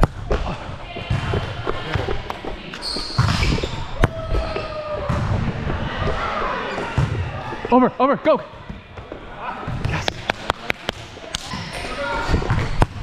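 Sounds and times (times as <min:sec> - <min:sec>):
shoes squeaking on court floor: 0:00.2 - 0:05.2, 0:06.0 - 0:07.9.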